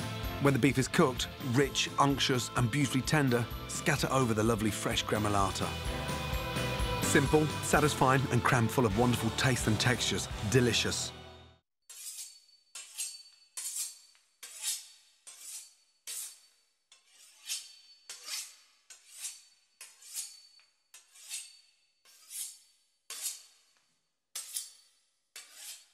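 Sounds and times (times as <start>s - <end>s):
knife sawing through crisp pastry: 11.9s - 25.9s.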